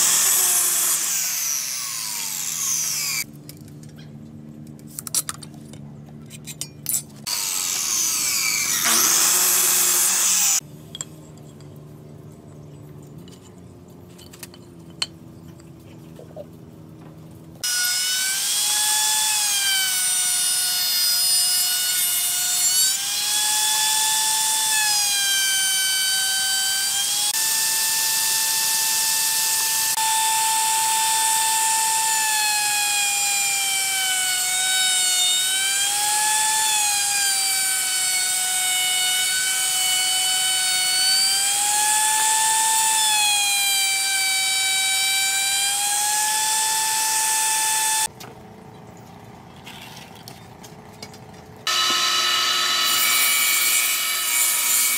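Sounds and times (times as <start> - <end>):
wood router whining: 0.0 - 3.3, 7.2 - 10.6, 17.6 - 48.1, 51.7 - 54.9.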